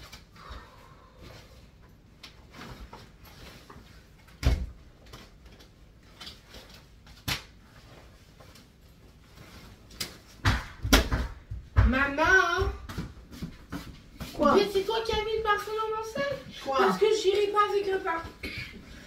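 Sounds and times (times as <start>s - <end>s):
papers and folders rustling: 1.3s - 10.4s.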